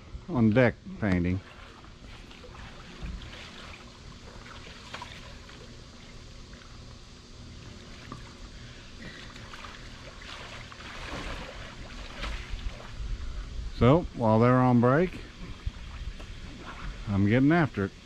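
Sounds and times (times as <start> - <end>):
water splashing in a pool: 1.2 - 13.4, 15.4 - 17.0.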